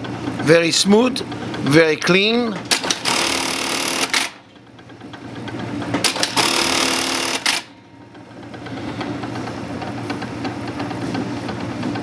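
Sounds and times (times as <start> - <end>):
sewing machine stitching: 2.7 - 4.4, 6.0 - 7.7.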